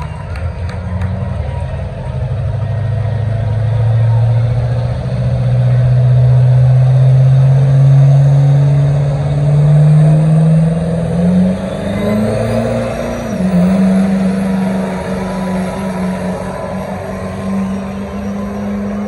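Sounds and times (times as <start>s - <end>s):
diesel engine revving hard: 0.0s - 19.0s
high whine: 6.7s - 19.0s.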